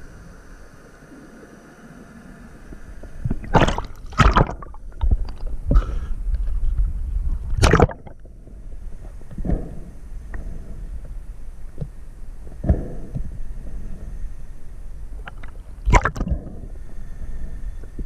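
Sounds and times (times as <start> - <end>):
low rumble: 2.0 - 18.0
water splashing and sloshing: 3.2 - 8.4, 15.2 - 16.7.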